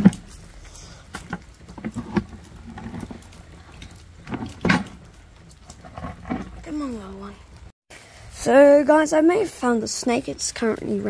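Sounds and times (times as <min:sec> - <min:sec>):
footsteps on wet gravel: 0:00.0 - 0:07.7.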